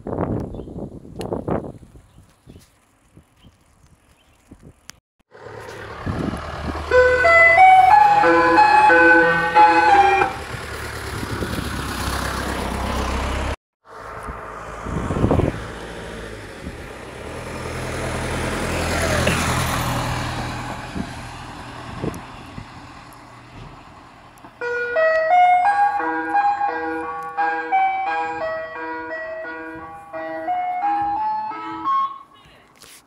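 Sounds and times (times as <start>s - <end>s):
van driving past: 5.3s - 32.1s
ice cream van chime tune: 6.8s - 10.4s, 24.6s - 32.6s.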